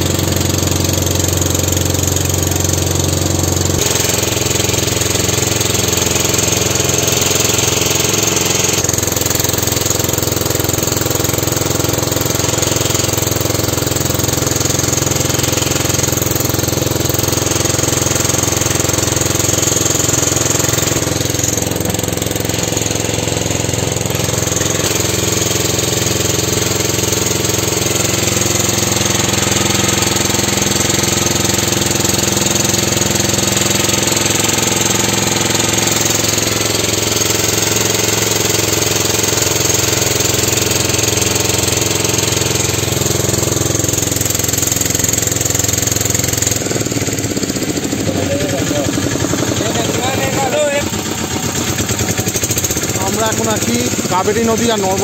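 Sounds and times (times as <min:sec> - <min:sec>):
boat engine droning: 0:00.0 - 0:55.0.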